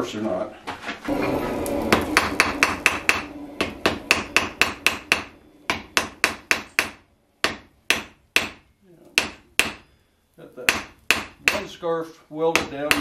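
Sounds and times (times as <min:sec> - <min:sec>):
hammer striking steel on anvil: 0:01.7 - 0:08.6, 0:09.2 - 0:09.9, 0:10.7 - 0:11.8, 0:12.5 - 0:13.0.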